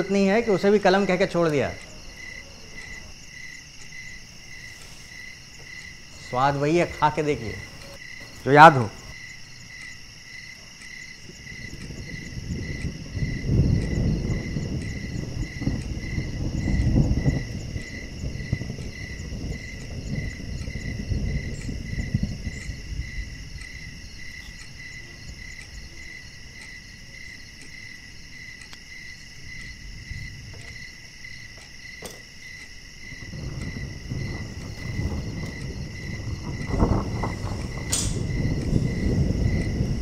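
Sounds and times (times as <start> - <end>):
crickets chirping: 0.0 - 40.0
low rumble: 33.1 - 40.0.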